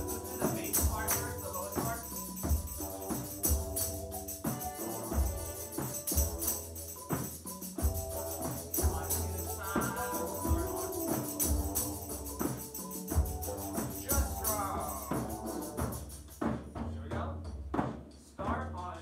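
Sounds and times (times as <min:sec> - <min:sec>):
high rattling shimmer: 0:00.0 - 0:16.4
frame drum beats: 0:00.0 - 0:19.0
group of voices singing: 0:08.4 - 0:15.3.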